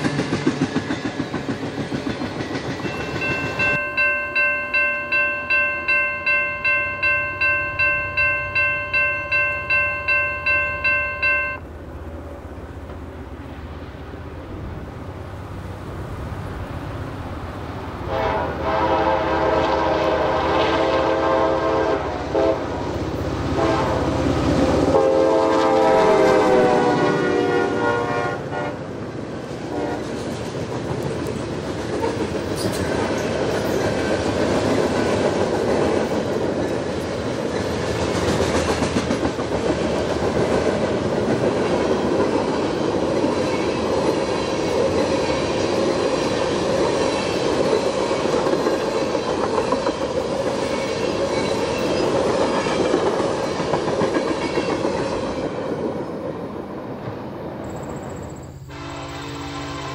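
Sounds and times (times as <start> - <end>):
train wheels clattering over rails: 0.0 - 3.9, 29.3 - 58.3
locomotive horn: 18.0 - 28.9, 29.7 - 30.1, 58.7 - 59.9.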